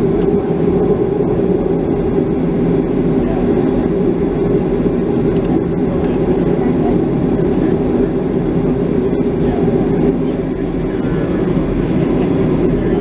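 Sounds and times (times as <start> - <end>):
airliner cabin engine hum: 0.0 - 13.0.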